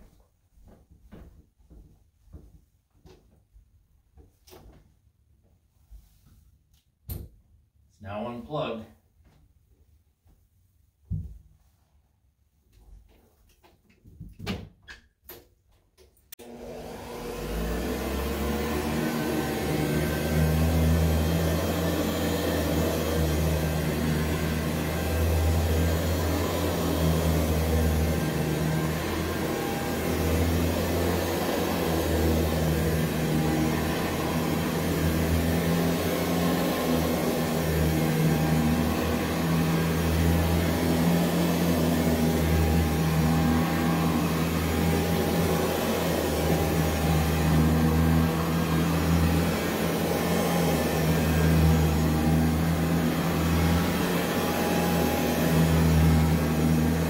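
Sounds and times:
vacuum cleaner running: 16.3 - 57.0.

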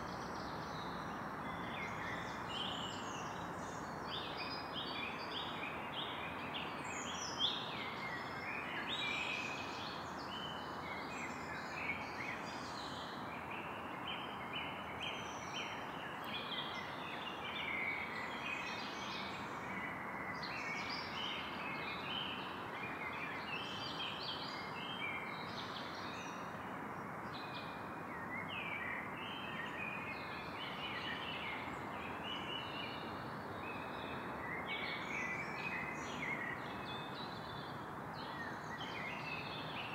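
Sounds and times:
steady background hiss: 0.0 - 39.9.

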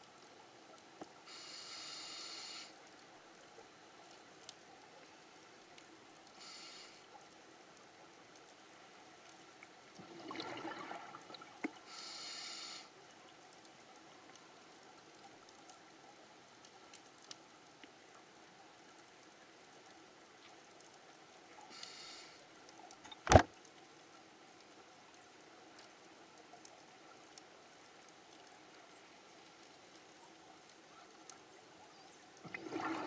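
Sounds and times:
exhaled bubbles underwater: 10.0 - 11.8, 32.4 - 33.0.

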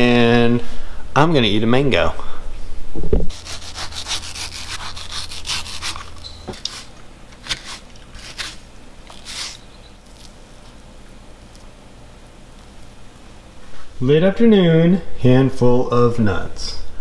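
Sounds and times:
knife scraping through fruit: 3.3 - 10.4.

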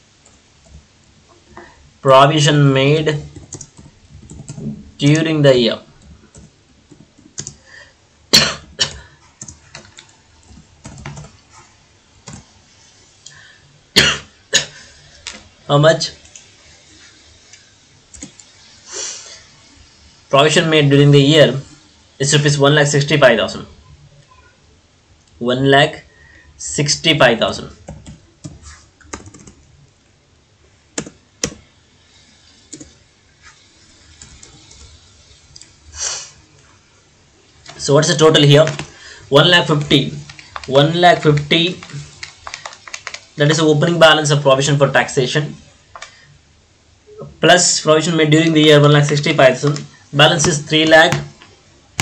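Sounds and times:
keyboard key clicks: 41.8 - 43.2.

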